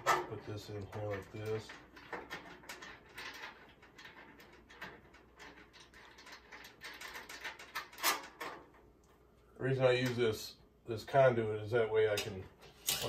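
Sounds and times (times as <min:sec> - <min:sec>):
metal conduit clicking and scraping: 0:00.0 - 0:09.2, 0:12.0 - 0:13.0.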